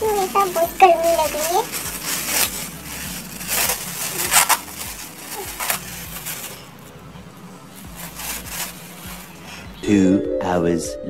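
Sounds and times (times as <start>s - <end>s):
plastic gloves crinkling: 0.0s - 9.8s.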